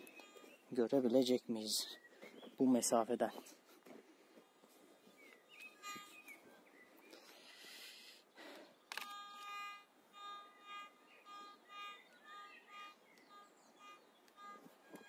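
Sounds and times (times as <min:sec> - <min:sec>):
metal detector buzzy target tone: 0:05.8 - 0:06.2, 0:09.0 - 0:15.0.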